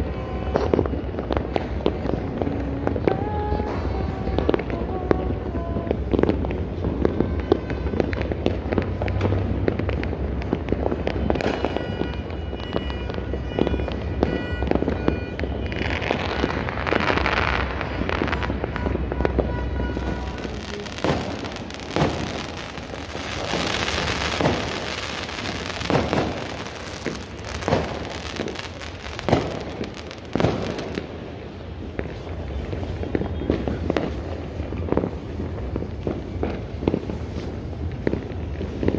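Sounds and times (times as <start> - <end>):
fireworks crackling: 0.0 - 38.9
fireworks popping and banging: 0.0 - 38.9
loud firework bangs: 5.8 - 38.9.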